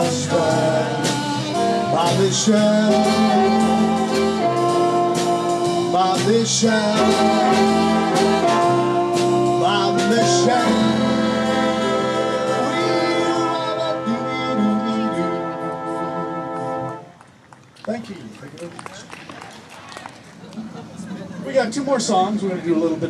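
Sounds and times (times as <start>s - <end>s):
big band brass playing: 0.0s - 17.2s.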